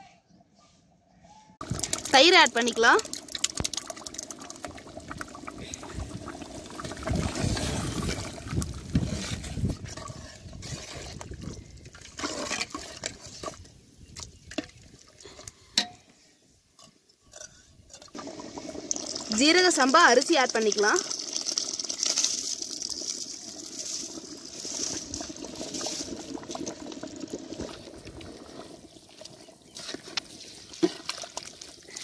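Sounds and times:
thick gravy sloshing in pot: 1.6s - 13.6s.

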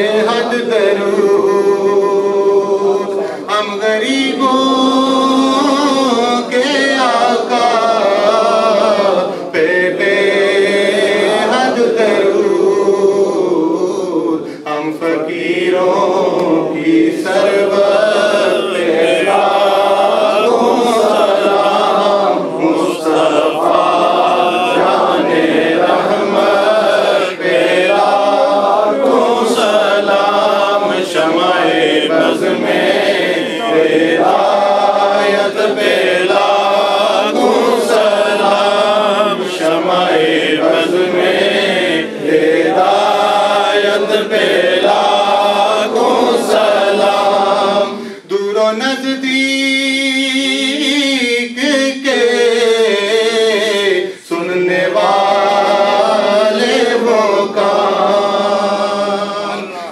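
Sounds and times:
man chanting: 0.0s - 9.5s, 12.5s - 25.2s, 47.9s - 54.9s.

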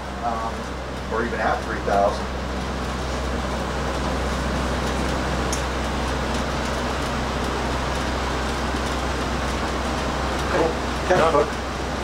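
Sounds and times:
low mechanical drone: 0.0s - 12.0s.

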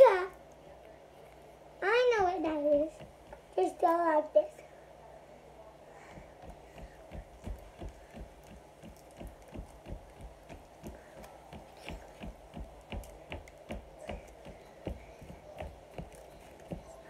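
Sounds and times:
soft low thumps: 6.0s - 17.0s.

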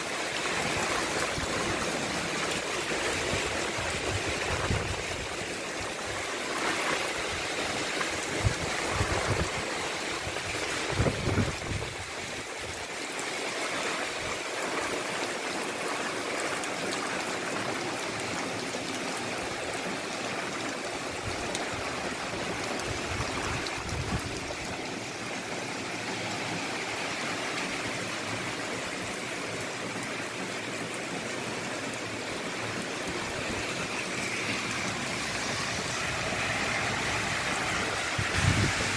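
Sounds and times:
heavy rain falling: 0.0s - 38.9s.

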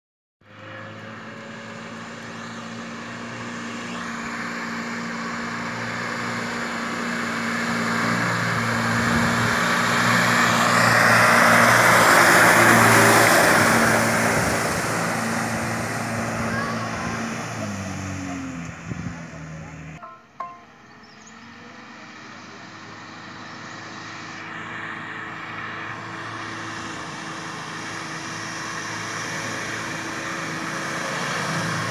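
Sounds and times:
car engine running: 0.6s - 31.9s
tyres splashing through water: 1.9s - 19.5s.

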